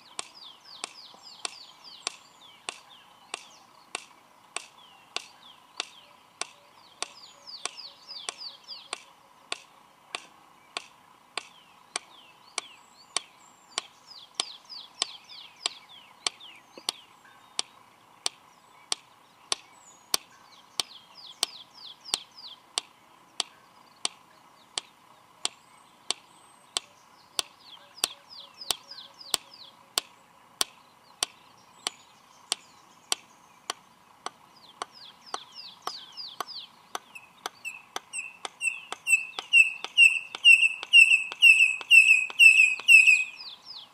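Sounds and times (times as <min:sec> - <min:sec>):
high falling bird chirps: 0:00.0 - 0:09.1, 0:10.6 - 0:43.9
bird beak clicks: 0:26.8 - 0:43.2.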